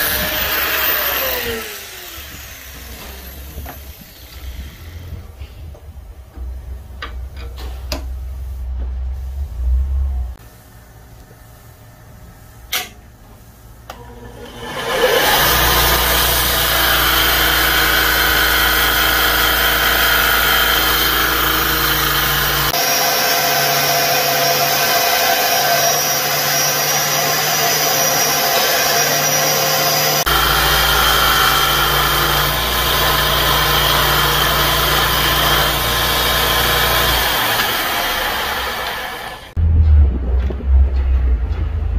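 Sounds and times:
belt grinder grinding steel: 0.0s - 5.2s, 14.2s - 39.6s.

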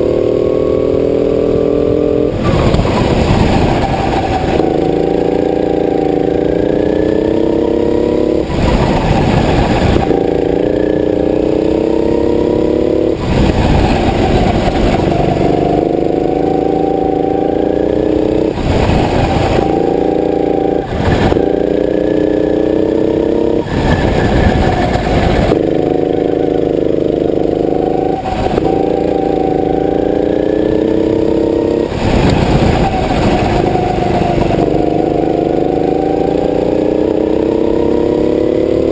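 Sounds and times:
go-kart engine accelerating: 0.0s - 38.9s
broad rushing noise: 13.0s - 16.2s, 18.0s - 21.9s, 23.4s - 26.2s, 31.8s - 35.0s.

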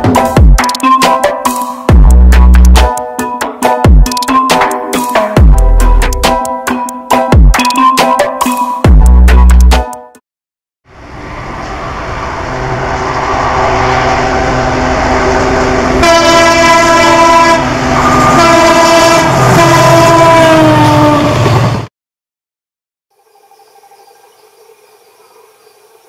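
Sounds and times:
diesel locomotive engine rumble: 10.9s - 21.8s
train horn blasts: 12.5s - 21.4s.

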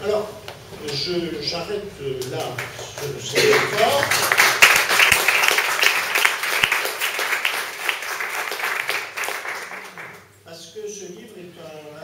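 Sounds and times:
audience applauding: 2.4s - 10.3s.

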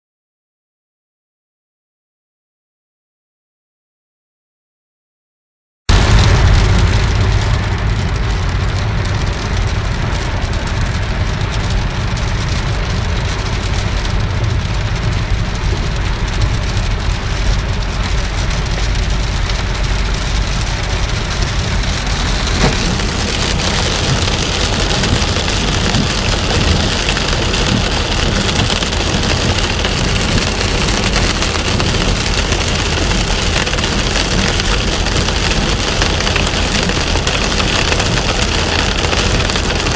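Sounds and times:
low rumble of car tyres: 5.9s - 39.9s
rain on a car windscreen: 5.9s - 39.9s.

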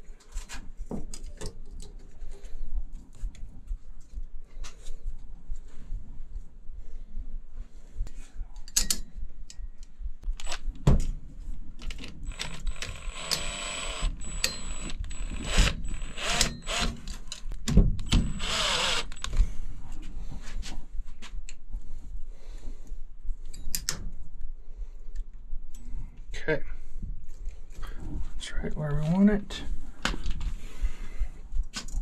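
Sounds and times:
tools and parts clicking: 8.6s - 9.6s, 11.8s - 19.4s
cordless power tool whining: 12.2s - 17.2s, 18.0s - 19.4s.

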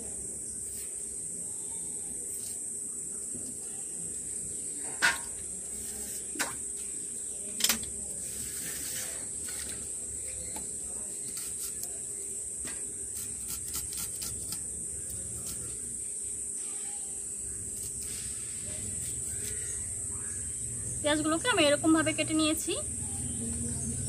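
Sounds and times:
high insect chirring: 0.2s - 24.0s
knife cutting onions: 11.2s - 12.0s, 13.0s - 15.9s, 17.7s - 19.7s.

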